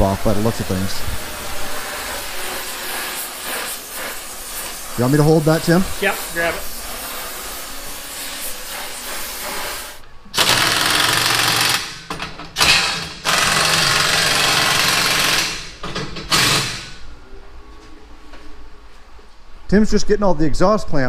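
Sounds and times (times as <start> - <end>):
cutting torch hissing: 0.0 - 10.0
air wrench rattling: 10.4 - 17.0.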